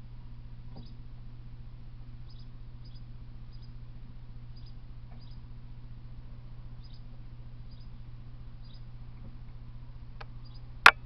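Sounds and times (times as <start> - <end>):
low electrical hum: 0.0 - 11.0
faint high squeaky chirps: 0.7 - 1.0, 2.2 - 3.8, 4.5 - 5.5, 6.8 - 9.0, 10.4 - 10.8.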